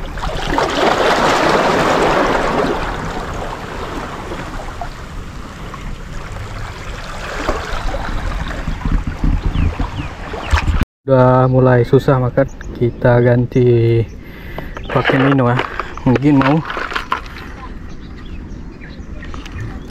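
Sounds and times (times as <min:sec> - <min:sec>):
seawater washing among rocks: 0:00.0 - 0:05.0, 0:05.6 - 0:10.8, 0:14.8 - 0:17.7
wind rumbling on microphone: 0:00.0 - 0:10.8, 0:12.0 - 0:19.9.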